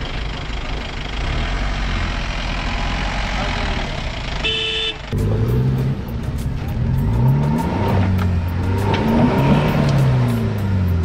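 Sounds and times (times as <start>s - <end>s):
engine revving: 1.1s - 4.5s, 5.1s - 11.0s
music with ticking beat: 5.2s - 11.0s.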